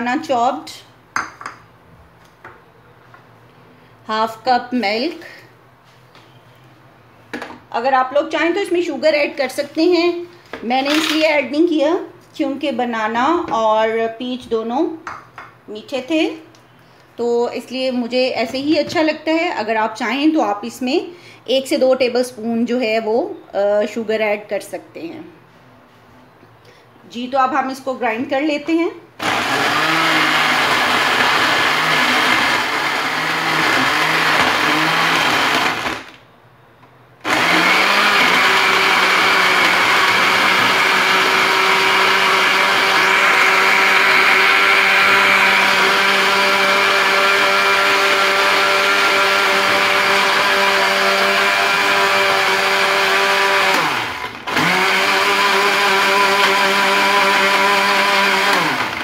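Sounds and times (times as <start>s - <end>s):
electric blender running: 29.2s - 36.2s, 37.2s - 59.0s.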